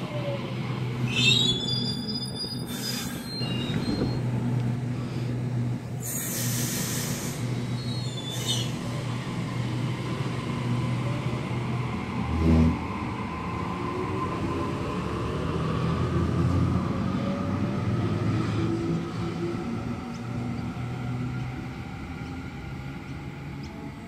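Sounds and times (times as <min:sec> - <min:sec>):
electric train humming: 0:02.5 - 0:24.0
air hissing: 0:06.0 - 0:07.6.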